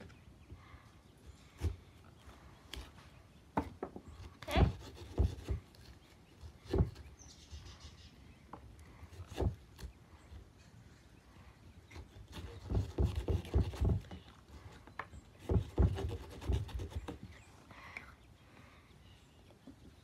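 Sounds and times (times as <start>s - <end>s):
carving tool scraping pumpkin: 4.2s - 7.2s, 9.1s - 10.0s, 11.9s - 17.4s
knocks on wooden board: 12.6s - 14.2s.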